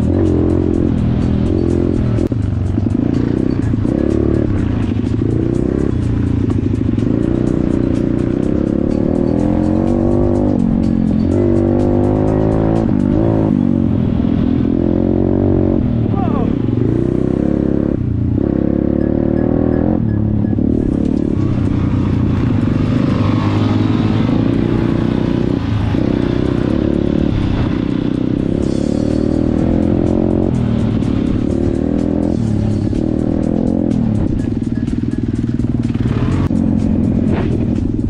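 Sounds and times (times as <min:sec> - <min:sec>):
motorcycle engine revving: 0:00.0 - 0:38.0
music playing: 0:00.0 - 0:38.0.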